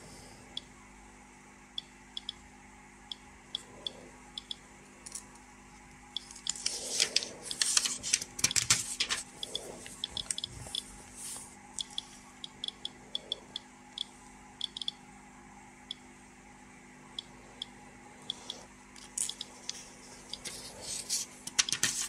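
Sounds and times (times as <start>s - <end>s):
paper pages rustling: 6.3s - 10.4s, 20.4s - 22.0s.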